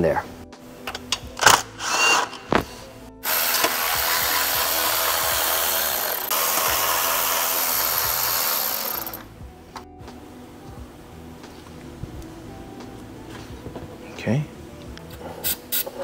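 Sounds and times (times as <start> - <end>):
cordless impact driver running: 3.2 - 9.3.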